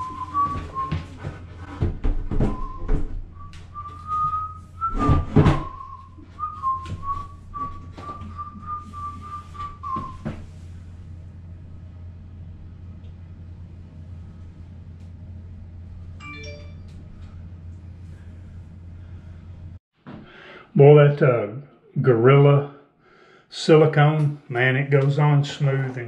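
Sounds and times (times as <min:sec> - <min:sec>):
man whistling a tune: 0:00.0 - 0:01.3, 0:02.3 - 0:10.4.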